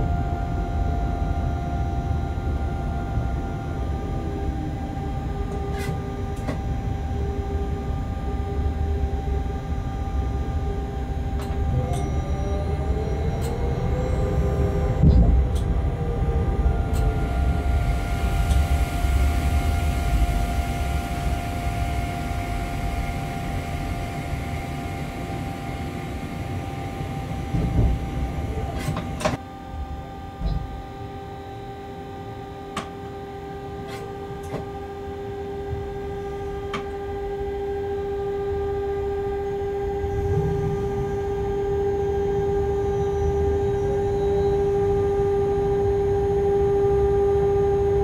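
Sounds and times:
steady hum: 0.0 - 48.0
train rumble: 11.2 - 29.4, 38.4 - 46.2.

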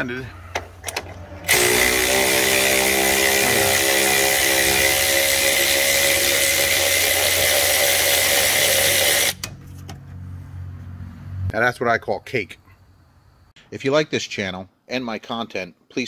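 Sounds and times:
power ratchet whining: 0.6 - 9.5.

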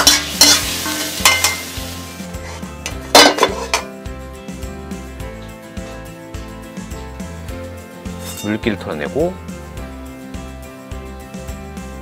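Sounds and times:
loud metallic clank: 0.0 - 1.7, 3.1 - 3.9
food sizzling: 0.0 - 4.0
soft background music: 0.0 - 12.0
metal scraping against metal: 2.3 - 3.9, 8.1 - 8.6.

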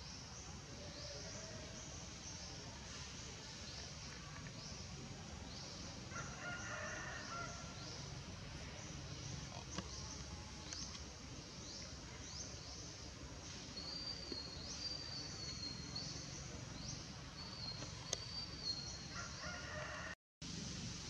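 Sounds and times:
low background hiss: 0.0 - 21.0
birds chirping: 3.5 - 20.0.

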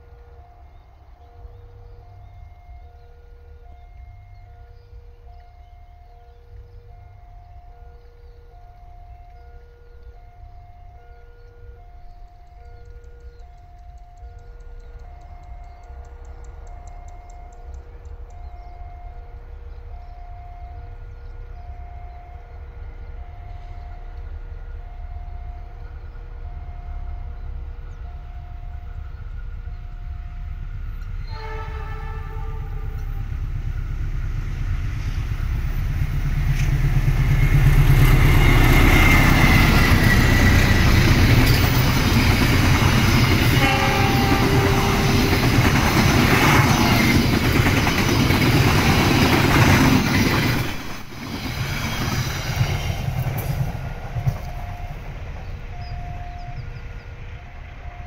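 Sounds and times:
locomotive rumble: 0.0 - 58.0
two-tone warning signal: 0.2 - 27.4, 37.3 - 49.6, 54.1 - 58.0
train horn: 28.0 - 33.5, 37.4 - 47.2
wheels clattering over rails: 35.6 - 56.4.

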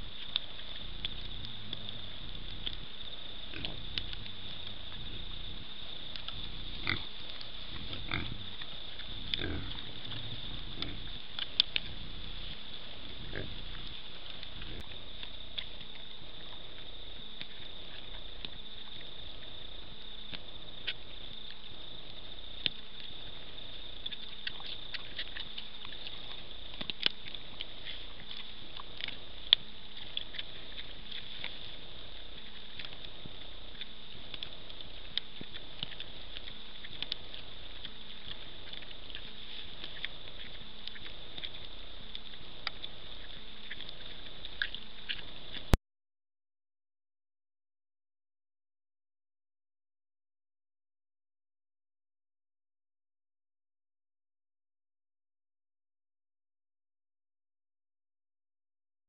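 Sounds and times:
pigs grunting: 0.0 - 14.9
steady high hiss: 0.0 - 15.5.

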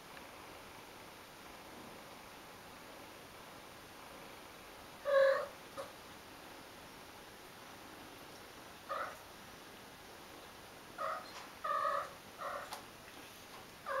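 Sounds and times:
cat mewing: 5.1 - 5.5.

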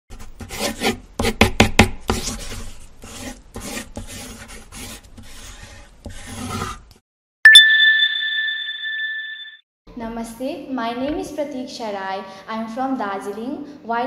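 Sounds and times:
pencil scratching on paper: 0.1 - 7.0.

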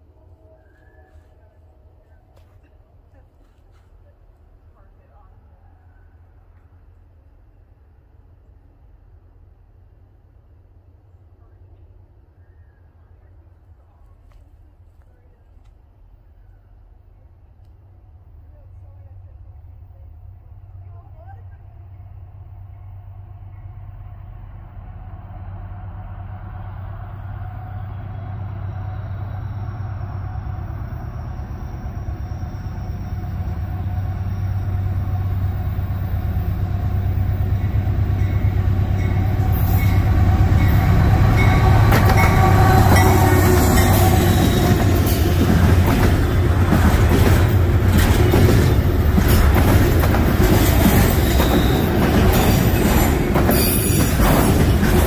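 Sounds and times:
locomotive engine drone: 0.0 - 55.0
train wheels clattering over rails: 36.7 - 55.0.

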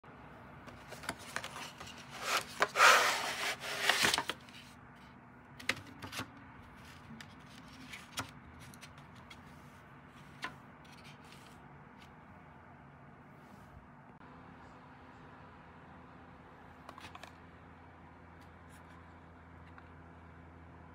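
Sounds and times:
cardboard tray sliding scrape: 0.8 - 4.6.

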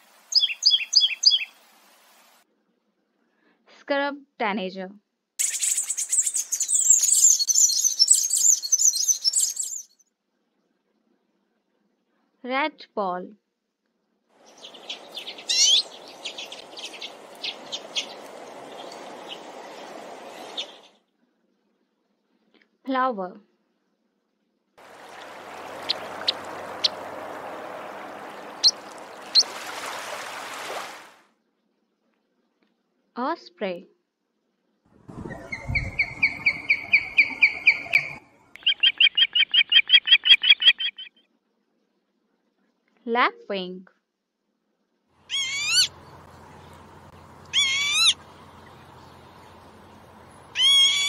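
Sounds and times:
finch twittering song: 0.3 - 1.6, 5.4 - 9.9, 14.4 - 20.9, 25.0 - 29.6, 35.1 - 41.2, 45.3 - 51.0
osprey whistled calls: 0.3 - 1.6, 5.4 - 9.9, 14.4 - 20.9, 25.0 - 29.6, 35.1 - 41.2, 45.3 - 46.8, 47.4 - 51.0.

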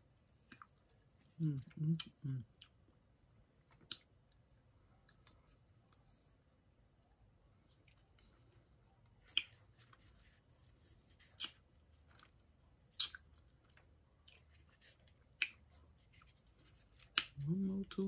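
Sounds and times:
mouth clicks and lip smacks: 3.7 - 4.2, 9.2 - 9.6, 11.3 - 11.6, 12.9 - 13.3.

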